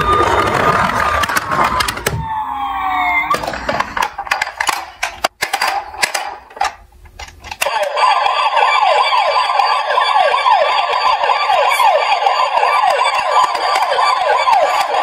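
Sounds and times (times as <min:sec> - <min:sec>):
electronic toy siren wailing: 0:00.0 - 0:03.7, 0:07.6 - 0:15.0
plastic toy clicks and knocks: 0:03.3 - 0:07.9.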